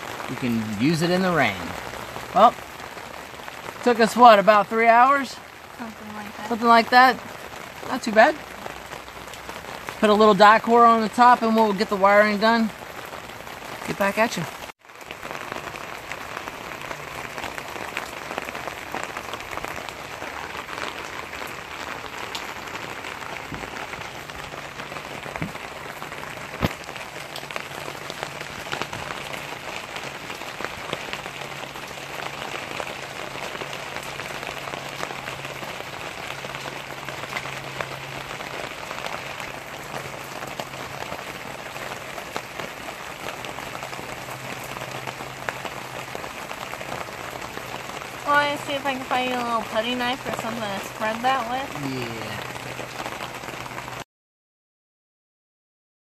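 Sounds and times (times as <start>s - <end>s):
heavy rain on fabric canopy: 0.0s - 54.1s.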